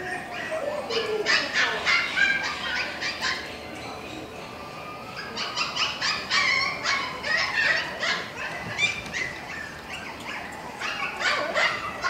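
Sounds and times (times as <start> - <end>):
dogs yipping and whimpering: 0.0 - 12.0.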